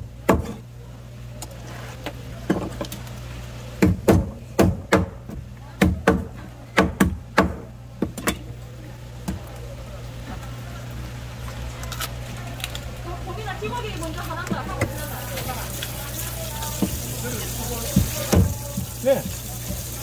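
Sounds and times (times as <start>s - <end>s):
knife chopping fish on board: 17.9s - 19.8s.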